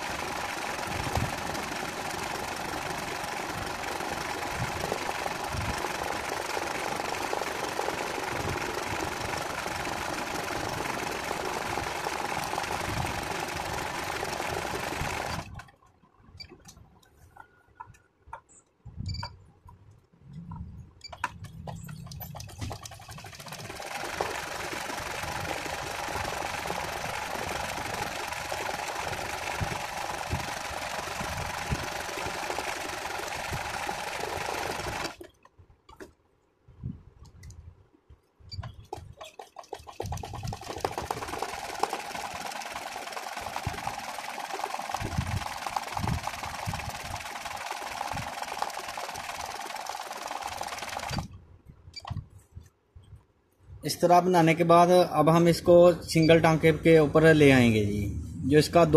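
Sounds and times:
sewing machine running fast: 0.0s - 15.7s, 22.0s - 35.3s, 38.9s - 51.3s.

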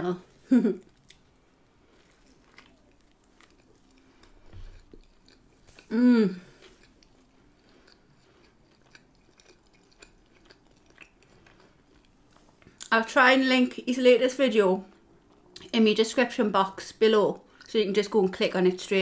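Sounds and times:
person chewing: 0.8s - 12.9s
person humming mmm: 5.8s - 6.7s.

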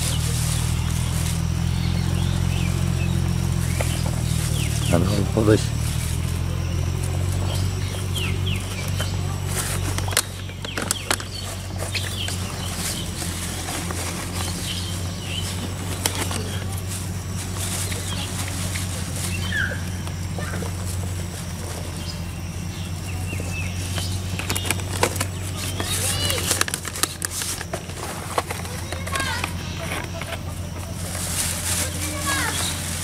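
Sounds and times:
steady low rumble: 0.0s - 25.8s
plastic bottles and bag rustling: 0.0s - 33.0s
small bird chirps: 17.6s - 20.7s.

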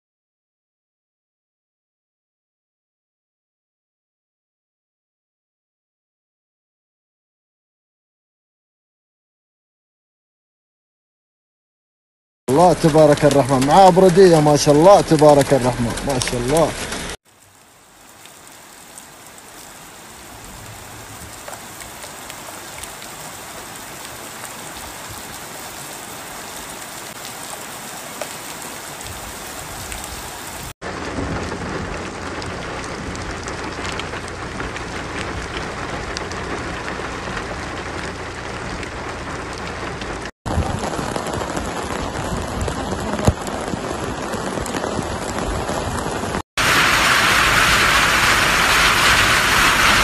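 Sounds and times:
hailstones hitting road: 12.5s - 17.2s, 30.8s - 50.0s
heavy rain pouring: 12.5s - 50.0s.

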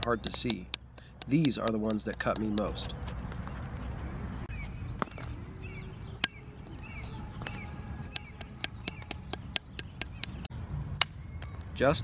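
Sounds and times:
antler striking stone clinking taps: 0.0s - 3.4s.

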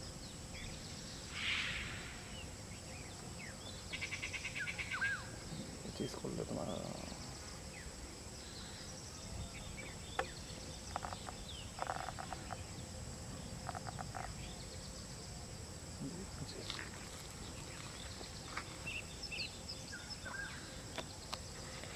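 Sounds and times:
high insect drone: 0.0s - 21.9s
bird chirps: 0.6s - 15.2s.

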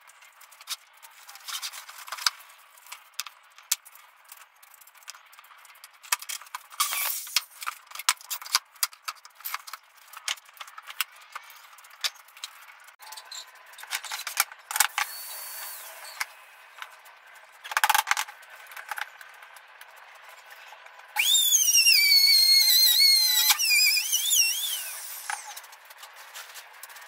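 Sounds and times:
palm router whining: 14.9s - 16.3s, 21.2s - 25.6s.

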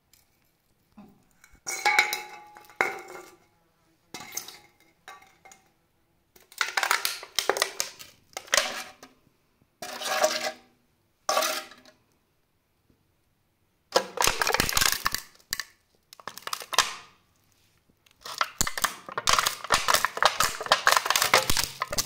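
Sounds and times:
aluminium can being crushed: 6.4s - 9.0s, 13.9s - 17.1s, 18.1s - 22.0s.

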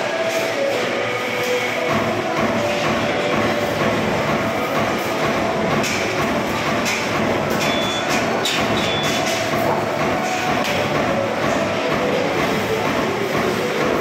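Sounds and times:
workshop machinery rumble: 0.0s - 14.0s.

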